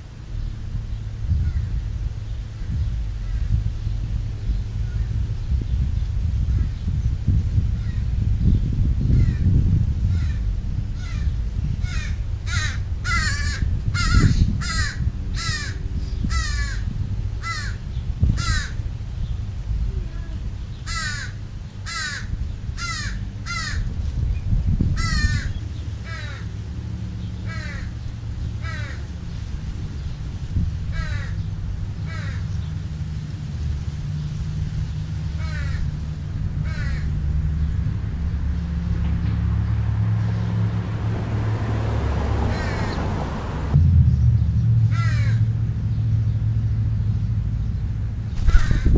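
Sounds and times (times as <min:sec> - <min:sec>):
steady low rumble: 0:00.0 - 0:48.9
crow cawing: 0:11.0 - 0:17.8, 0:18.4 - 0:18.8, 0:20.9 - 0:23.9, 0:25.0 - 0:26.5, 0:27.5 - 0:27.9, 0:28.6 - 0:29.0, 0:30.9 - 0:31.4, 0:32.1 - 0:32.5, 0:35.4 - 0:35.9, 0:36.6 - 0:37.2, 0:42.5 - 0:43.0, 0:44.9 - 0:45.4, 0:48.4 - 0:48.9.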